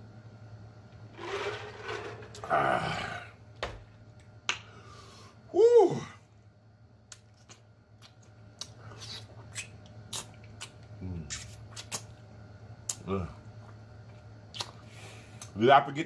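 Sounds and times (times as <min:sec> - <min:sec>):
man humming mmm: 0:02.4 - 0:03.4, 0:05.5 - 0:06.2
wet lip-smacking and sucking: 0:07.1 - 0:12.2, 0:14.5 - 0:15.6.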